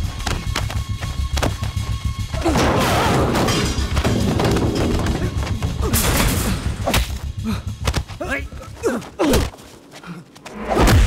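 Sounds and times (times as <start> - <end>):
dramatic background music: 0.0 - 11.0
crash of smashing objects: 2.5 - 6.6
punch and thud effects: 10.7 - 11.0.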